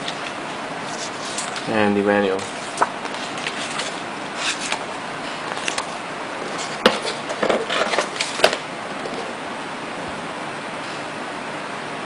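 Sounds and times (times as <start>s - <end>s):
booklet pages flipping: 0.0s - 9.4s.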